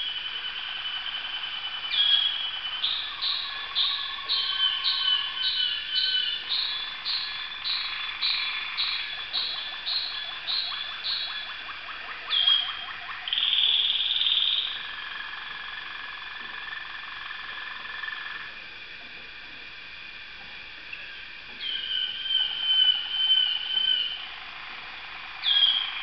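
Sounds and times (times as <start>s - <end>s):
canary singing trills: 0.0s - 15.5s, 21.6s - 24.3s, 25.4s - 26.0s.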